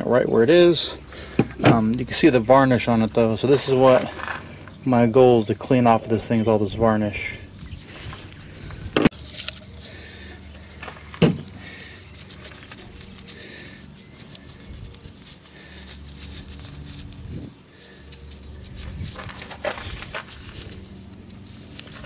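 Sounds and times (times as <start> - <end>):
fingers rubbing metal needle: 12.2 - 21.7.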